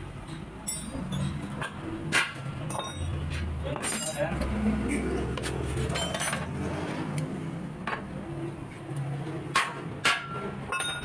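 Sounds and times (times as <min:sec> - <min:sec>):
metal parts and tools clinking: 0:00.2 - 0:04.6, 0:05.8 - 0:06.6, 0:10.1 - 0:11.0.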